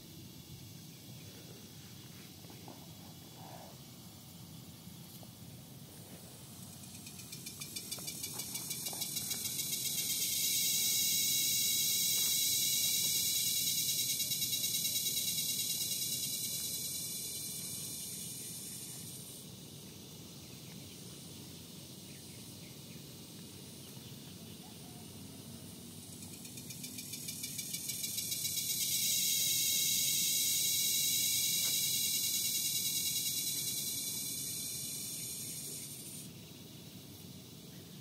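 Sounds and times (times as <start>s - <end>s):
insects pulsing chorus: 0.0s - 38.0s.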